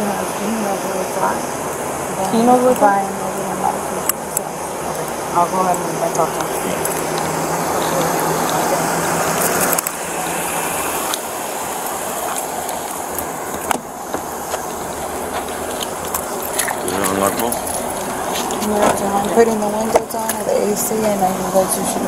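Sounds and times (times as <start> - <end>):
low hum: 0.0 - 22.0
rushing street noise: 0.0 - 22.0
clicks and rustles: 11.0 - 21.2.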